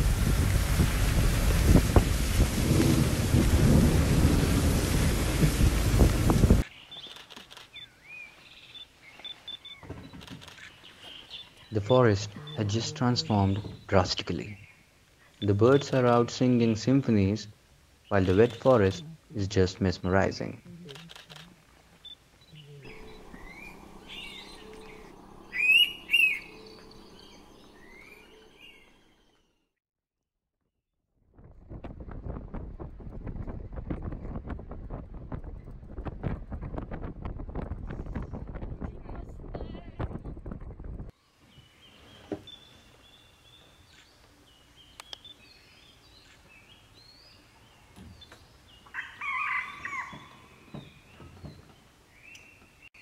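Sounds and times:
low rustles: 0.0s - 7.7s
birds whistling: 22.0s - 29.4s
loud sharp bird calls: 22.5s - 29.0s, 48.8s - 51.3s.

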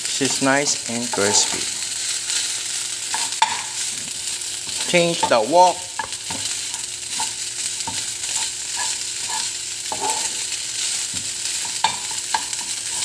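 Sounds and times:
rice sizzling in a wok: 0.0s - 13.0s
spatula scraping a pan: 0.1s - 2.5s, 3.1s - 13.0s
spatula knocking against pan: 11.1s - 13.0s.

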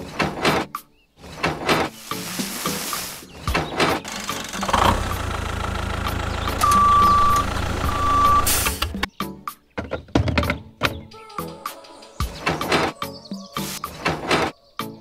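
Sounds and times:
sand pouring from trailer: 1.9s - 3.4s, 7.2s - 8.9s
tractor engine running: 4.0s - 9.0s
long high beeps: 6.6s - 8.7s.

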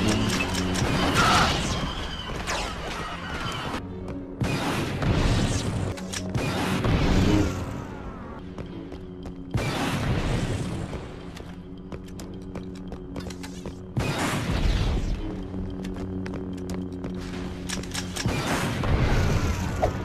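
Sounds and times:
video game background music: 0.0s - 20.0s
rapid blaster shots: 17.9s - 19.8s.

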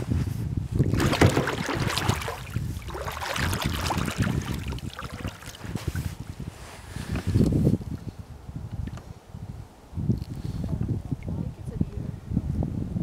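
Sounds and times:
water splashing and trickling: 0.8s - 6.2s
paddle strokes in water: 0.8s - 7.4s.

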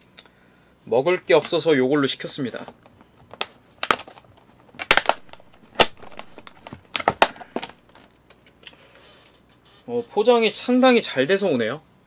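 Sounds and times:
plastic crinkling: 2.5s - 8.6s
plastic container lid snapping: 4.8s - 7.8s.

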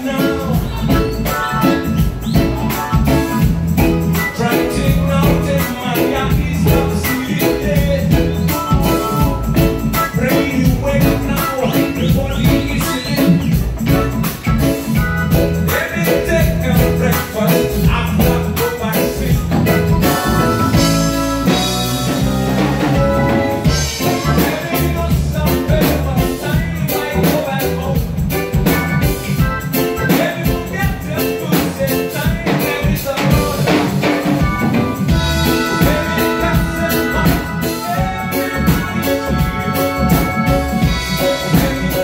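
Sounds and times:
drum kit: 0.0s - 42.0s
electric guitar: 0.0s - 42.0s
keyboard: 0.0s - 42.0s.

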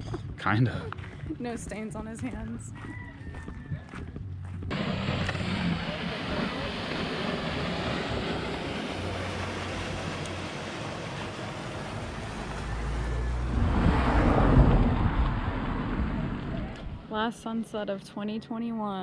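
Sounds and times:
wind: 0.0s - 19.0s
motorboat engine running: 4.3s - 17.0s
rushing water: 4.7s - 16.5s.

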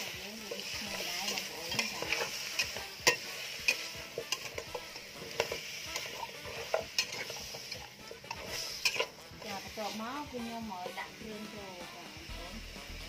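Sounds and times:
food sizzling in a metal pot: 0.0s - 13.0s
spatula scraping and knocking pot: 0.5s - 9.8s.

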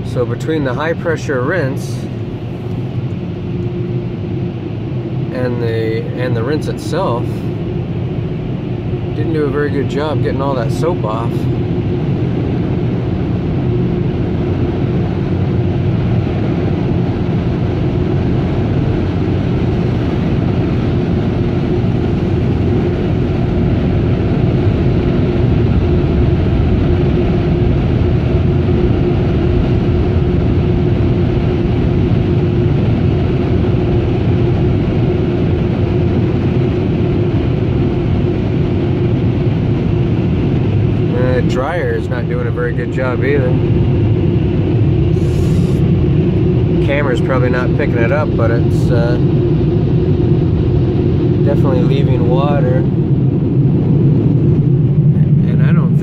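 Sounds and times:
air dryer blowers rushing: 45.0s - 49.2s.

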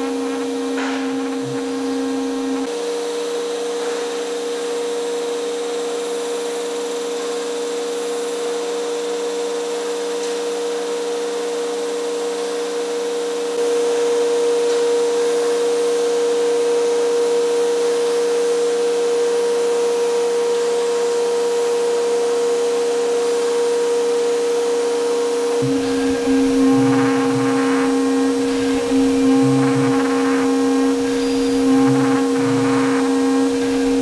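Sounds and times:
dust extraction: 0.0s - 2.7s, 25.6s - 34.0s
router spindle humming: 0.0s - 2.8s, 25.4s - 34.0s.

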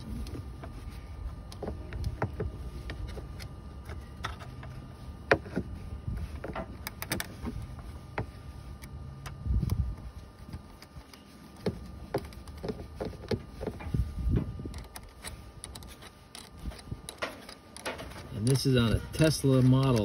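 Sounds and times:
wrench clicking and scraping metal: 14.7s - 20.0s.

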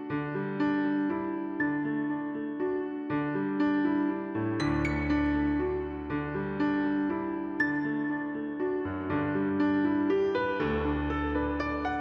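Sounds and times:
slow keyboard music: 0.0s - 12.0s.

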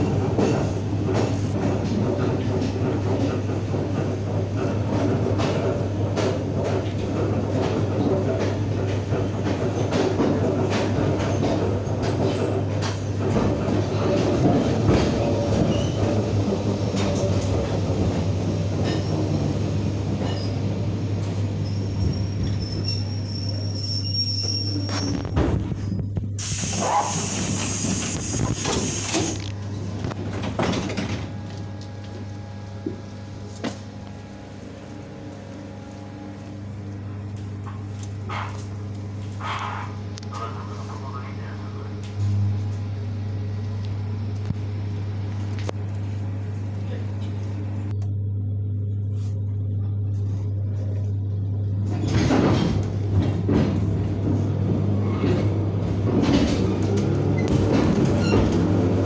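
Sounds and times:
sliding doors clattering: 0.0s - 22.6s, 27.1s - 31.8s, 51.8s - 59.0s
electrical hum of train: 0.0s - 59.0s
hiss of air: 26.4s - 29.4s.

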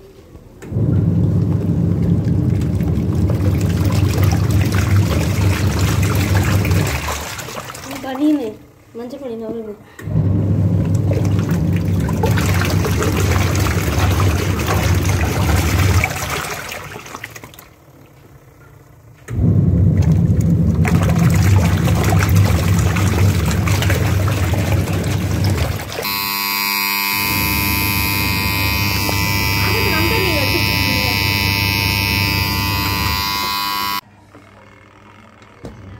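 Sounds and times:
washing machine motor churning: 0.6s - 18.3s, 19.2s - 34.0s
water sloshing: 1.1s - 8.6s, 10.7s - 18.2s, 19.9s - 34.0s
steady buzzing tone: 25.8s - 34.0s.

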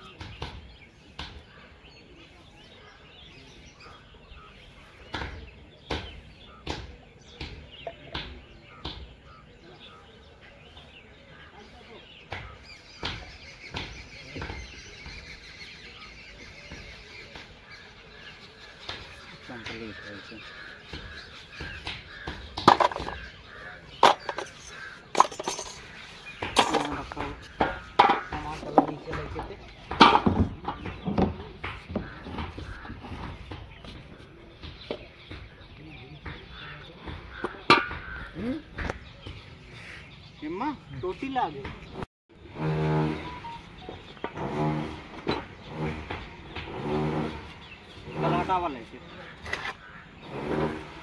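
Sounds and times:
sharp knocks: 18.9s - 34.0s, 41.6s - 48.6s
plastic pipe fittings knocking: 21.7s - 23.3s, 24.0s - 25.8s, 26.4s - 33.4s.

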